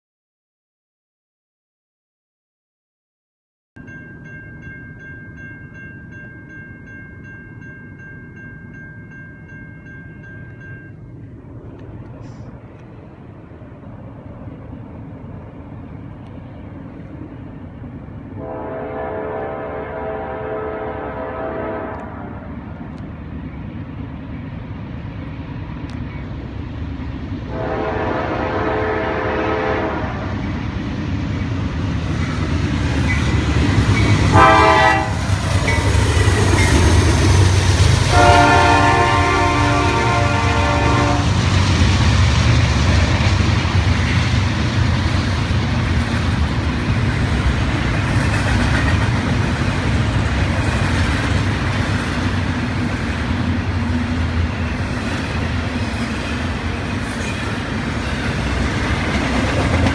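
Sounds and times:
locomotive horn blasts: 0:18.4 - 0:22.4, 0:27.5 - 0:30.4, 0:34.3 - 0:35.3, 0:38.1 - 0:41.4
train wheels rolling: 0:21.6 - 0:59.9.

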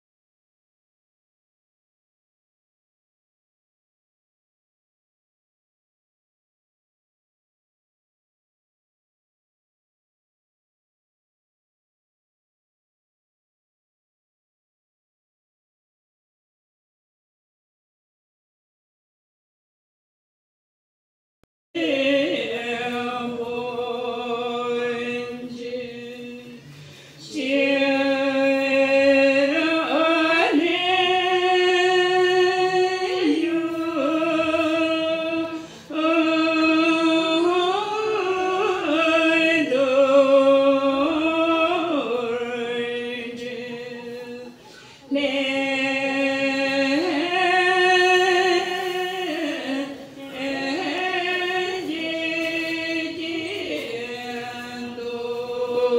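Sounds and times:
women singing in unison: 0:21.8 - 0:55.9.

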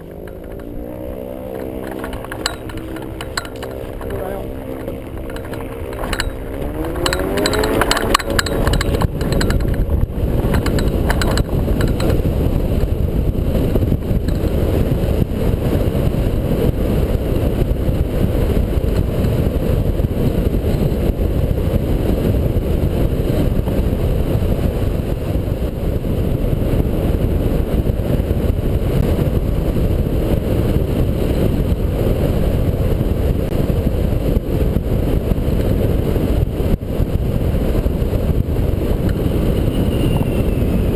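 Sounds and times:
aircraft engine revving: 0:00.0 - 0:25.0
wind rushing on microphone: 0:00.0 - 0:40.9.

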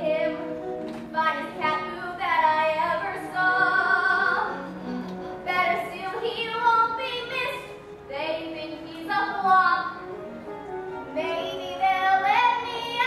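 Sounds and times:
musical accompaniment: 0:00.0 - 0:13.0
child singing: 0:11.2 - 0:13.0.

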